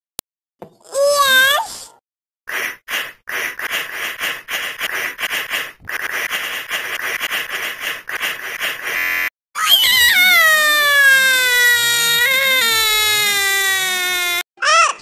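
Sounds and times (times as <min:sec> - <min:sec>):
rapid breathy rasping pulses: 0:02.5 - 0:08.9.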